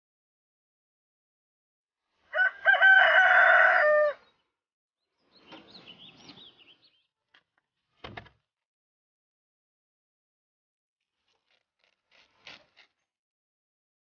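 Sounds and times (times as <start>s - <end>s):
rooster crowing: 2.3s - 4.3s
small birds chirping: 4.2s - 7.5s.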